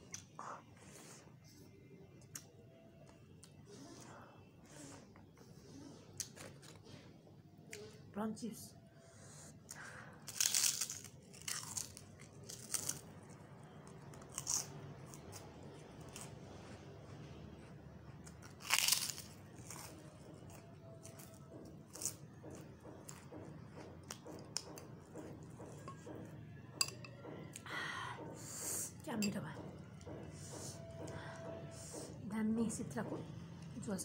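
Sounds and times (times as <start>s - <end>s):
chewing crackle: 9.7s - 16.4s, 18.2s - 23.3s
crackers crunching: 9.7s - 16.4s, 18.2s - 23.2s.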